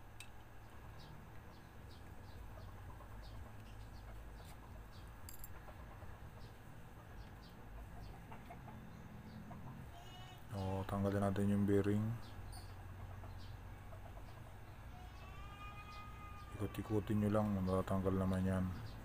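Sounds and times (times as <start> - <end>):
faint bird chirps: 7.2 - 19.0.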